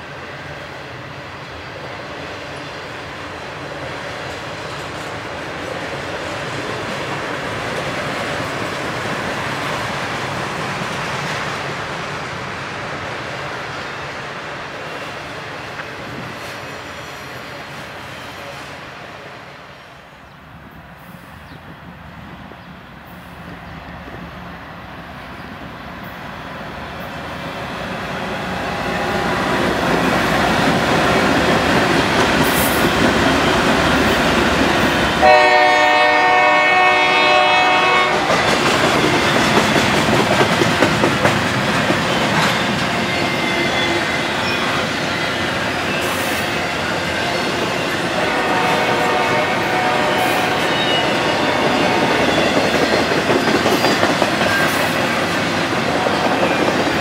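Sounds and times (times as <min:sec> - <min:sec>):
diesel locomotives: 0:00.0 - 0:57.0
train horn blast: 0:35.1 - 0:38.5, 0:48.1 - 0:52.3.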